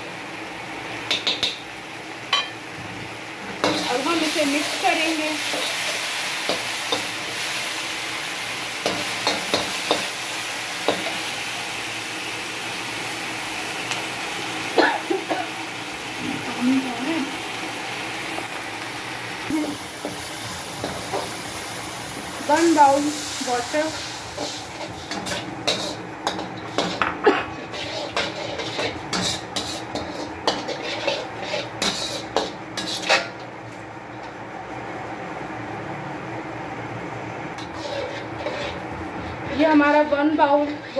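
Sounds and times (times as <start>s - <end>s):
vegetables sizzling in a wok: 0.0s - 40.9s
metal spoon scraping wok: 3.6s - 7.6s, 22.5s - 33.4s, 37.6s - 40.9s.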